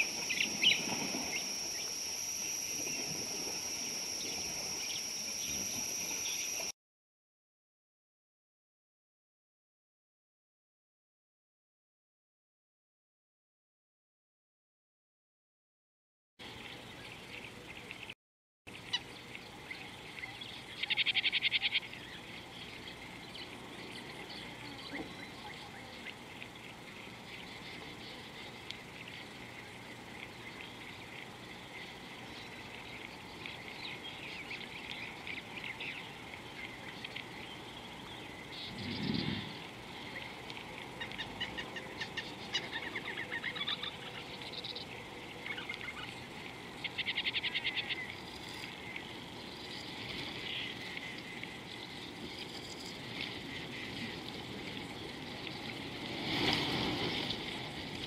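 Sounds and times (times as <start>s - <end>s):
small wildlife chirping and trilling: 0.0s - 6.7s
rapid pulsed trills: 0.0s - 6.8s.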